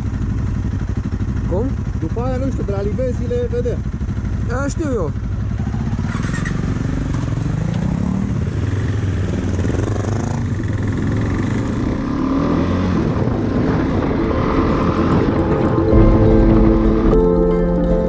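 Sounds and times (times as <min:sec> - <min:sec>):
motorcycle engine accelerating: 0:00.0 - 0:18.0.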